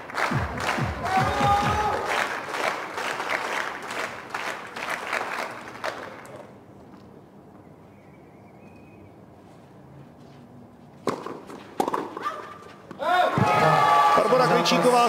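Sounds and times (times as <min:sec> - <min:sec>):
crowd applause: 0:00.0 - 0:06.3.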